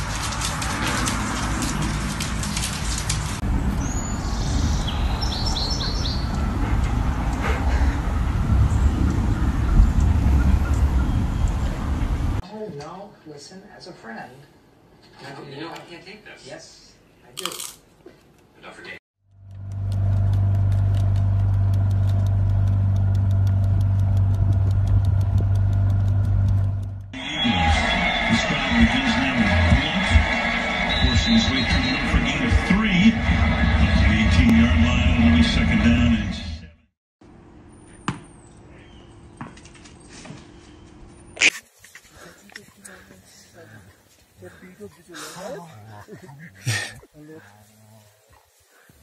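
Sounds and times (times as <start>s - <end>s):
bird chirping: 3.7s - 6.6s, 8.7s - 12.0s, 38.2s - 39.4s
low rumble: 6.2s - 12.4s, 19.3s - 27.2s
motorboat engine running: 19.3s - 27.1s
rapid clicking: 19.3s - 27.2s.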